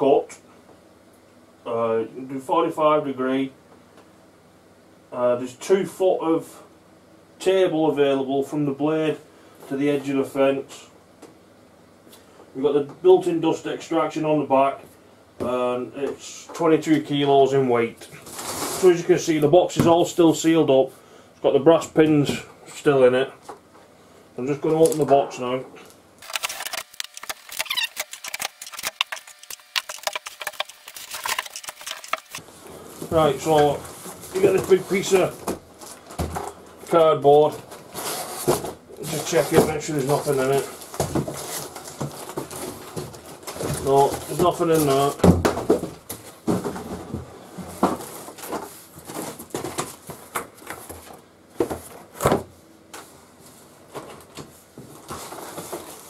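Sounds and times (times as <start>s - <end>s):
knife slitting packing tape: 26.2s - 32.4s
cardboard flaps rustling: 26.2s - 52.6s, 53.9s - 56.0s
short squeaky scrape: 27.5s - 28.8s.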